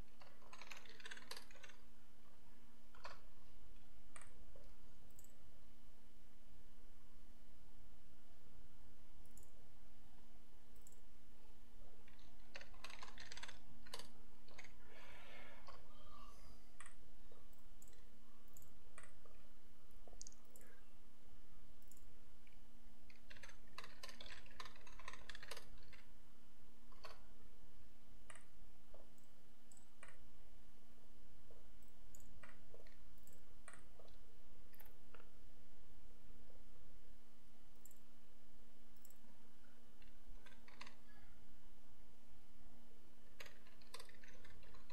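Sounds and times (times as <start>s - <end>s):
computer mouse clicks: 0.0s - 1.9s, 2.9s - 5.4s, 9.2s - 9.6s, 10.7s - 11.1s, 12.0s - 15.8s, 16.8s - 19.4s, 20.0s - 20.8s, 21.8s - 26.1s, 26.9s - 27.3s, 28.2s - 30.2s, 31.8s - 35.3s, 37.7s - 38.1s, 39.0s - 39.2s, 40.0s - 41.2s, 43.2s - 44.9s
low electrical hum: 0.0s - 44.9s
keyboard keystrokes: 12.1s - 14.7s.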